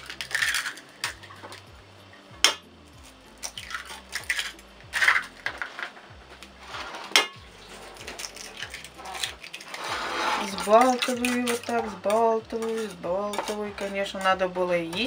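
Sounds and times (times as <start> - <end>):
egg cracking on bowl rim: 0.0 - 1.6, 3.4 - 5.6, 8.0 - 9.8.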